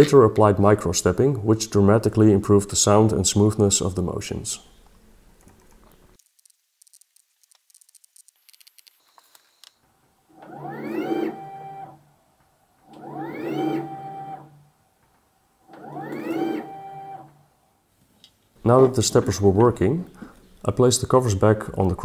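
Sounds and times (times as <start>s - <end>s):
stepper motor whine: 10.3s - 12.0s, 12.9s - 14.6s, 15.8s - 17.4s.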